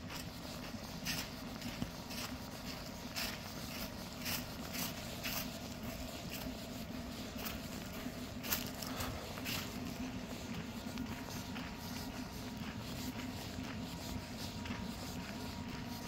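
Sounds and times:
footsteps crunching on gravel: 0:00.0 - 0:16.0.

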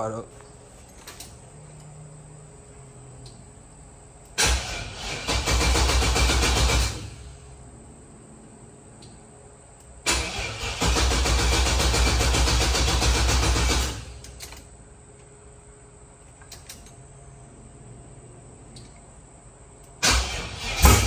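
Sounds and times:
engine starter cranking: 0:04.4 - 0:07.4, 0:10.1 - 0:14.6, 0:20.0 - 0:21.0.

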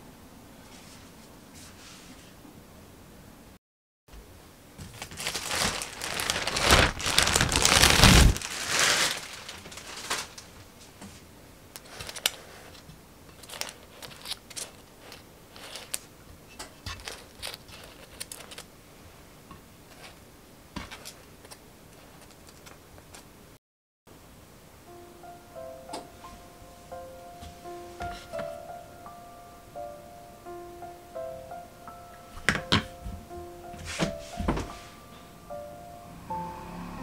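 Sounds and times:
cling wrap crinkling: 0:04.8 - 0:10.7, 0:11.8 - 0:16.1, 0:16.8 - 0:18.7.

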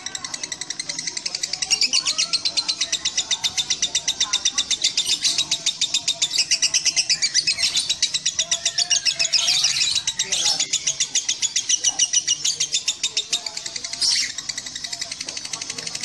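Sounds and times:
lovebird chattering: 0:00.0 - 0:16.0.

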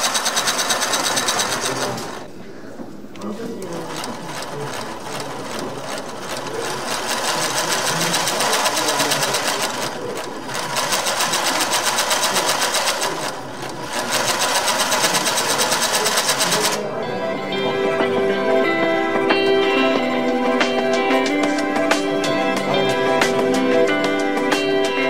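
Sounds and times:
electric motor driving plastic gears: 0:00.0 - 0:02.3, 0:03.6 - 0:16.8.

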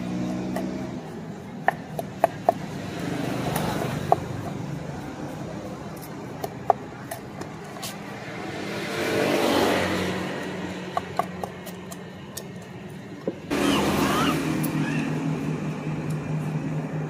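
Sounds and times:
steady low hum: 0:10.7 - 0:17.0
blade tapping and clicking: 0:10.9 - 0:12.9
rushing noise: 0:13.5 - 0:17.0.

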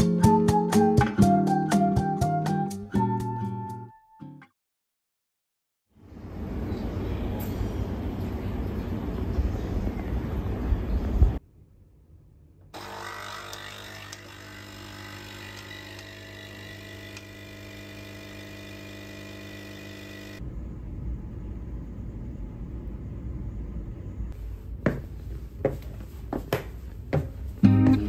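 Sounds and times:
espresso machine pump humming: 0:12.8 - 0:20.4
footsteps on wooden stairs: 0:24.8 - 0:28.0.

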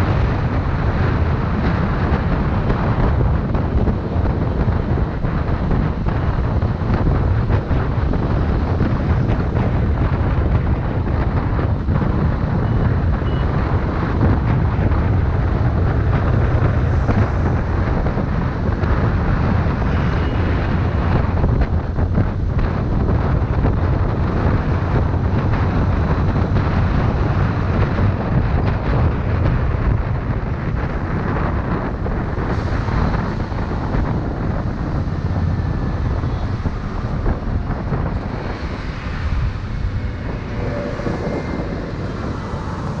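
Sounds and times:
wind rushing over microphone: 0:00.0 - 0:43.0
motorcycle engine: 0:34.8 - 0:43.0.

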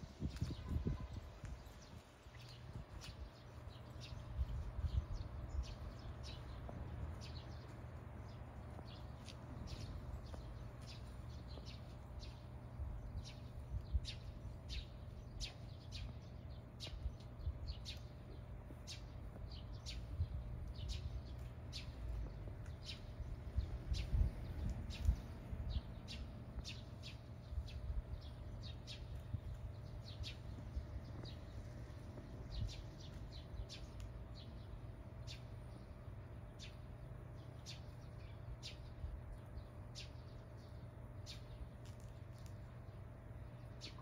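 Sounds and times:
small birds chirping: 0:00.0 - 0:44.0
steady low rumble: 0:00.0 - 0:44.0.

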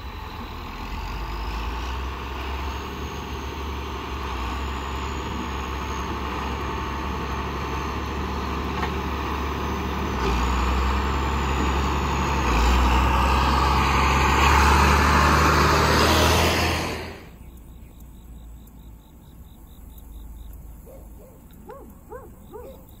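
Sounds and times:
tractor diesel engine: 0:00.0 - 0:17.4.

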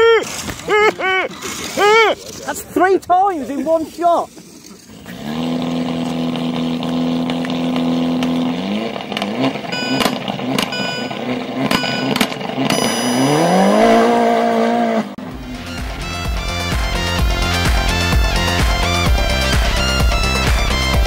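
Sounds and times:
sharp exhaust cracks: 0:04.8 - 0:14.2
rally car engine revving: 0:04.8 - 0:16.2.

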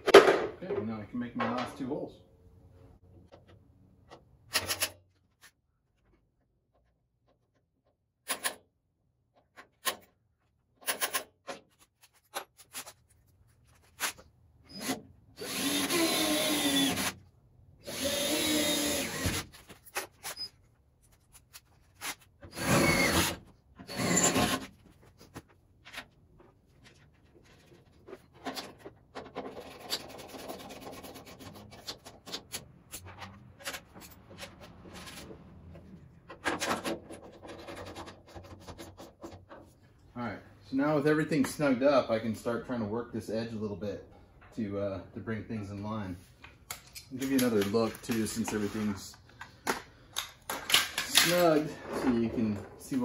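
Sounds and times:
tools clicking and knocking: 0:03.2 - 0:05.0, 0:06.7 - 0:08.7, 0:09.3 - 0:13.0, 0:28.0 - 0:35.3, 0:46.6 - 0:48.6, 0:49.4 - 0:51.6
power drill whining: 0:14.7 - 0:17.2, 0:17.8 - 0:19.5, 0:22.5 - 0:24.6.

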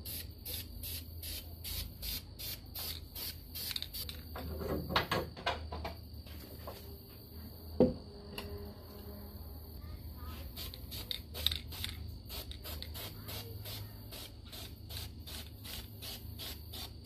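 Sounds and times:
spray can bursts: 0:00.0 - 0:04.2, 0:10.4 - 0:17.0.

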